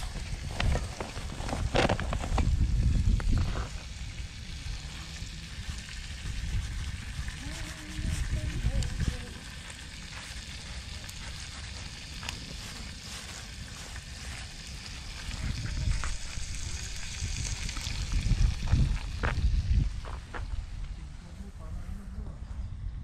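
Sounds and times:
fish sizzling in a frying pan: 0.0 - 20.0
low rumble: 0.0 - 23.0.

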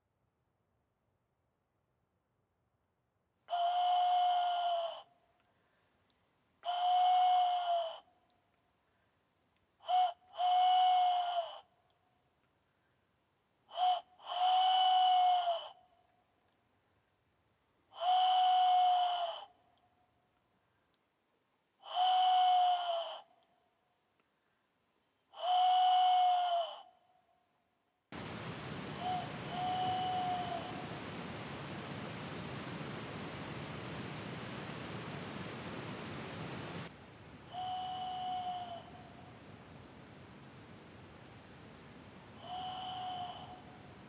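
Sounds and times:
wooden bird whistle hoots: 3.5 - 5.1, 6.6 - 8.0, 25.4 - 26.8, 29.0 - 30.8, 37.5 - 39.1, 42.4 - 43.7.

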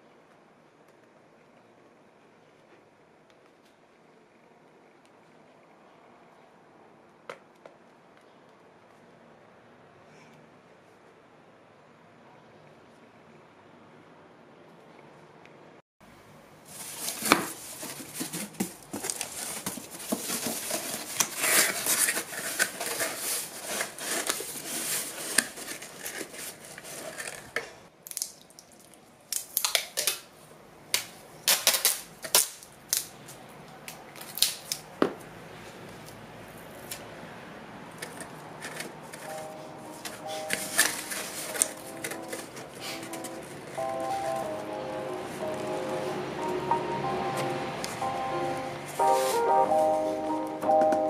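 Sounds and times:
cardboard flaps scraping: 16.7 - 27.6.

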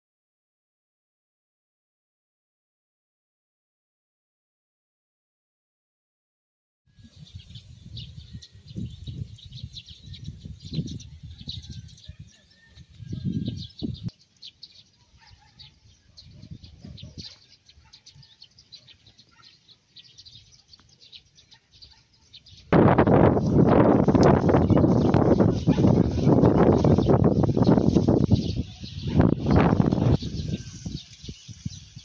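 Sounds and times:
wind gusts on microphone: 7.0 - 18.7, 22.4 - 32.0
small birds chirping: 7.0 - 32.0.

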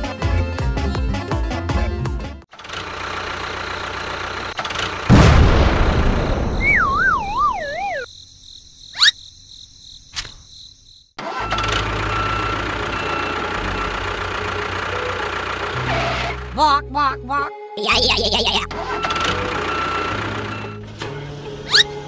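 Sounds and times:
engine running: 2.5 - 6.5, 11.2 - 16.9, 18.1 - 22.0
loud burst: 5.1 - 7.0
wobbling falling whistle effect: 6.5 - 8.1.

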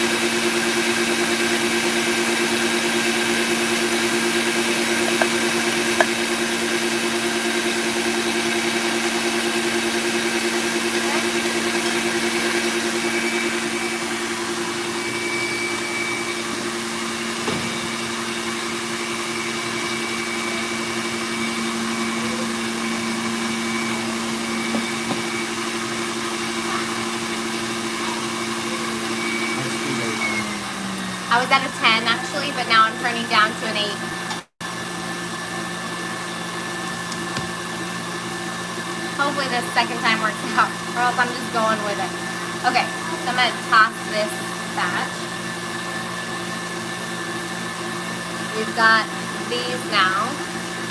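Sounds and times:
whisk whipping: 0.0 - 13.8
stand mixer motor running: 0.0 - 50.9.

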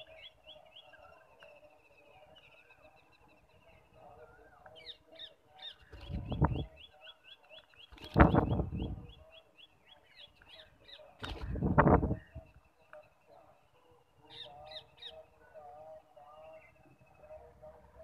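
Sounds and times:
wing flapping: 7.9 - 8.7, 11.2 - 12.2.

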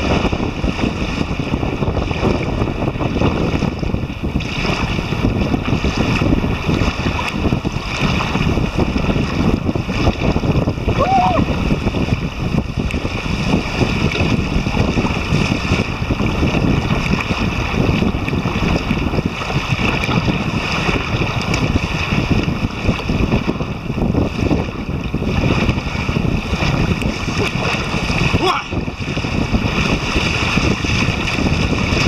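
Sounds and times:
strong wind buffeting microphone: 0.0 - 32.0
waves lapping against dock: 0.0 - 32.0.

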